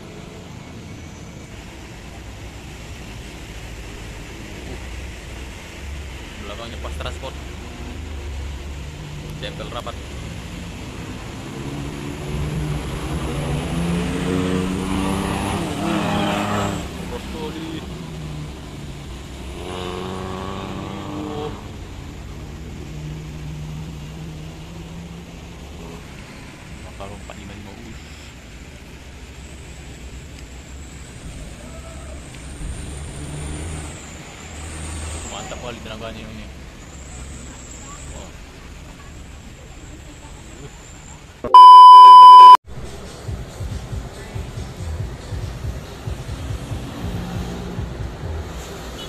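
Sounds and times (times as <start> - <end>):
minibus engine pulling uphill: 0.0 - 41.4.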